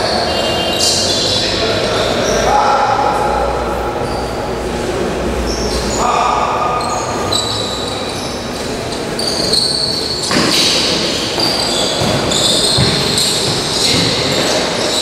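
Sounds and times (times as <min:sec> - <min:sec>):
shoe squeaks on court floor: 0:04.0 - 0:04.5, 0:05.4 - 0:15.0.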